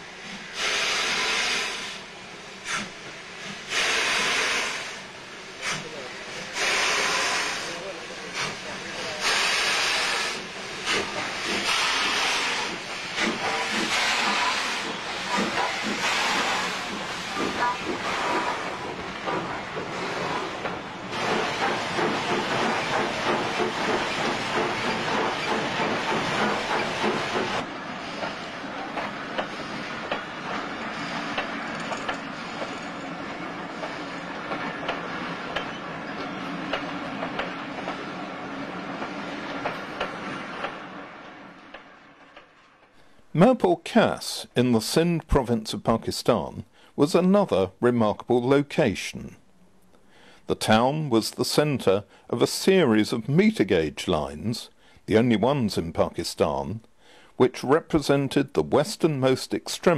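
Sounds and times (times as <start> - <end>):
steam locomotive hissing and chuffing: 0.0 - 47.6, 50.0 - 59.9
train coaches passing: 0.0 - 49.0.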